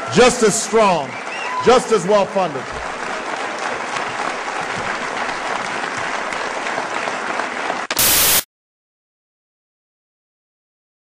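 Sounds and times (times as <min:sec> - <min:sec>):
audience applauding: 0:00.0 - 0:08.4
loud burst of noise: 0:07.9 - 0:08.5.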